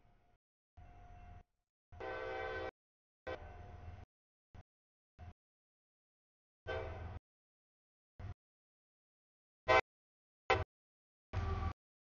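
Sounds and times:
diesel locomotive engine rumble: 0:00.0 - 0:01.4, 0:02.0 - 0:02.7, 0:03.3 - 0:04.1, 0:06.7 - 0:07.2, 0:11.4 - 0:11.8.

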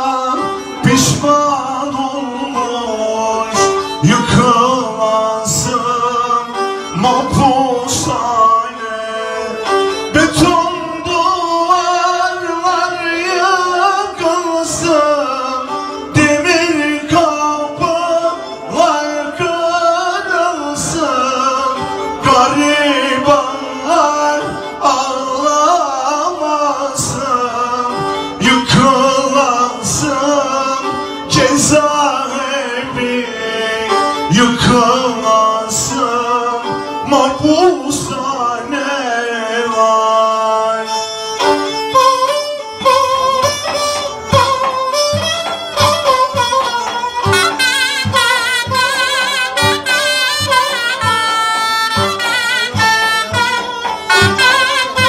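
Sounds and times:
bowed string instrument melody: 0:00.0 - 0:55.0
clarinet melody: 0:42.4 - 0:55.0
drum strikes: 0:42.8 - 0:55.0.

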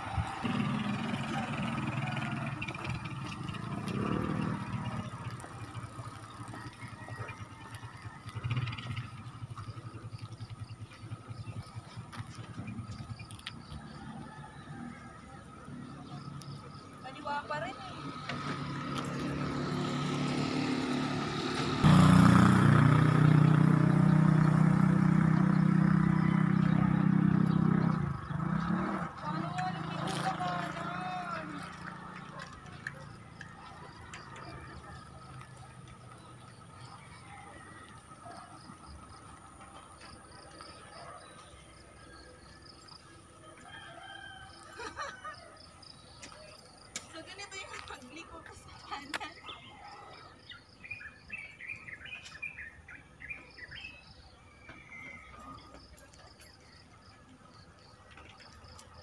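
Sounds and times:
rooster crowing: 0:00.0 - 0:03.1, 0:06.5 - 0:08.8, 0:13.8 - 0:15.6, 0:43.4 - 0:45.6
vehicle engine running: 0:00.0 - 0:43.4.

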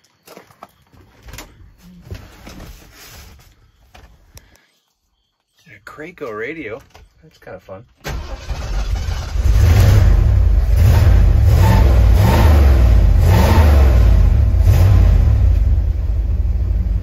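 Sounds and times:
truck engine revving over idle: 0:08.2 - 0:17.0.

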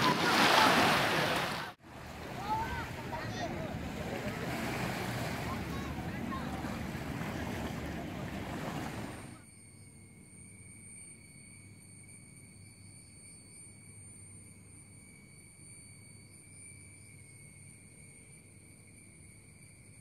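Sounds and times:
small sea waves washing ashore: 0:00.0 - 0:09.4
cicadas droning: 0:00.5 - 0:20.0.

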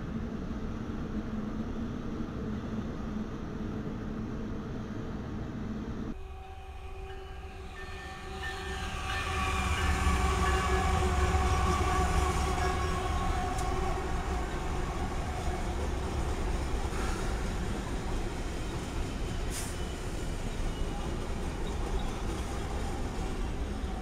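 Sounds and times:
diesel locomotives rumbling past: 0:00.0 - 0:24.0
train horn chord: 0:06.2 - 0:17.8.

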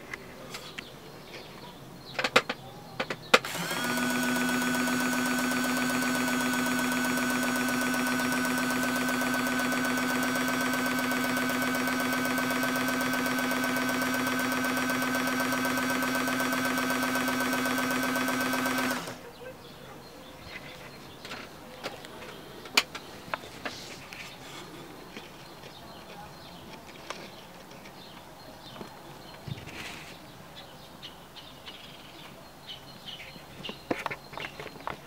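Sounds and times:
sewing machine humming: 0:03.4 - 0:19.2.

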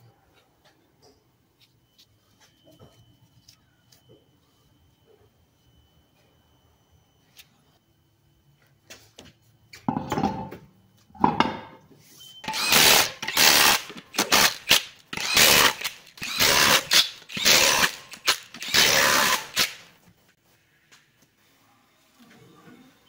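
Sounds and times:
impact wrench spinning: 0:12.4 - 0:19.9.

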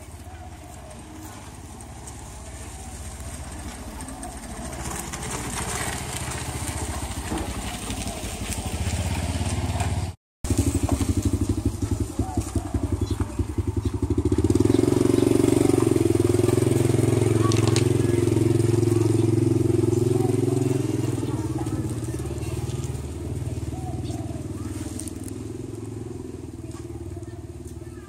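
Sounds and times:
small motorbike engines puttering: 0:00.0 - 0:28.0.

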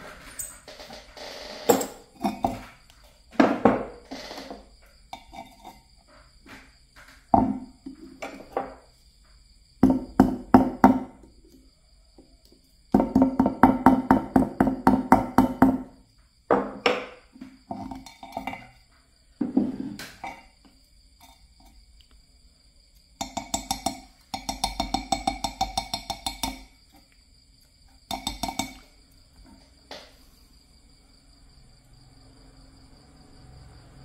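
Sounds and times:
hammer tapping copper wire: 0:23.2 - 0:26.7, 0:28.1 - 0:28.8.

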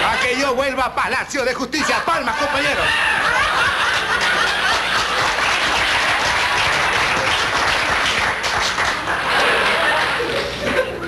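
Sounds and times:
audience applauding: 0:03.2 - 0:10.6.

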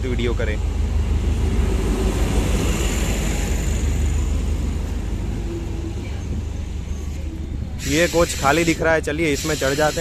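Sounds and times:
diesel train rumble: 0:00.0 - 0:10.0
wheel and rail hiss: 0:06.1 - 0:10.0.

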